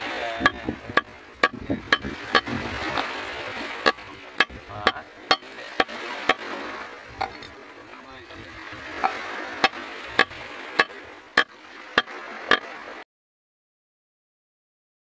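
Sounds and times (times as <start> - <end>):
knife chopping on wooden block: 9.0 - 10.9.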